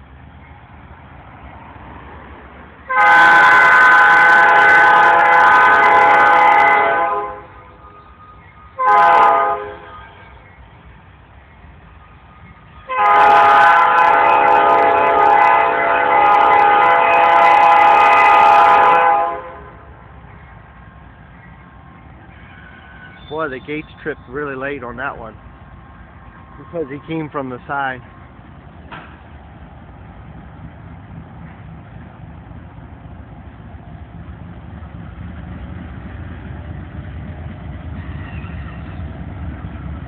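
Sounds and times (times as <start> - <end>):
locomotive air horn blasts: 2.9 - 7.8, 8.8 - 10.3, 12.8 - 19.9.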